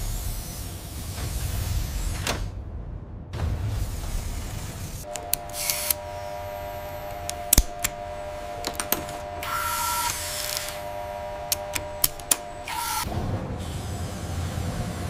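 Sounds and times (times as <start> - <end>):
mechanical hum: 0.0 - 15.0
short hissing whirs: 4.0 - 14.8
sharp mechanical clicks: 5.0 - 6.1, 6.9 - 13.1.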